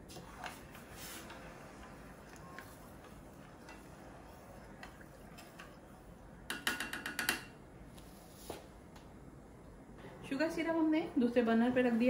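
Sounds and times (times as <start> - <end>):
spoon stirring in a saucepan: 0.0 - 7.6.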